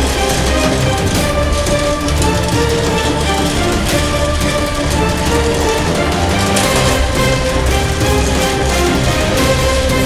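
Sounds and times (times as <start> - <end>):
theme-style music soundtrack: 0.0 - 10.0.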